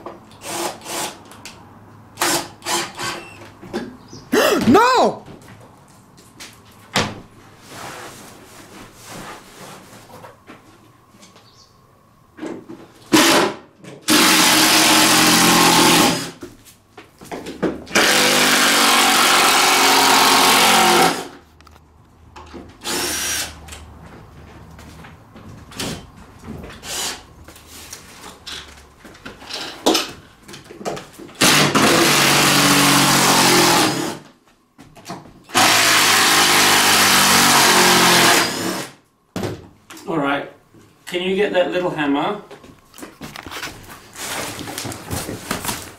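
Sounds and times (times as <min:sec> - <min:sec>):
power drill driving screws: 0:00.4 - 0:01.2, 0:02.2 - 0:03.4, 0:13.1 - 0:16.4, 0:17.9 - 0:21.4, 0:22.8 - 0:23.6, 0:26.8 - 0:27.2, 0:31.4 - 0:34.2, 0:35.5 - 0:39.0.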